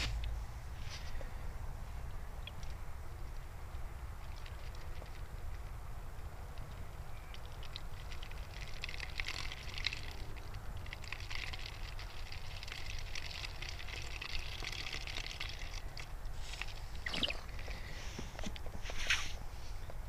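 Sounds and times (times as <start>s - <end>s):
low steady rumble: 0.0s - 20.0s
liquid trickling into plastic bottle: 6.6s - 19.0s.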